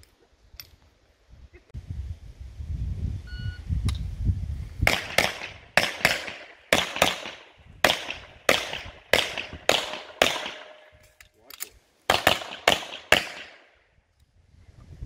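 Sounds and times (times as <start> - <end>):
pistol shots with echo: 4.8 - 10.9, 12.1 - 13.8.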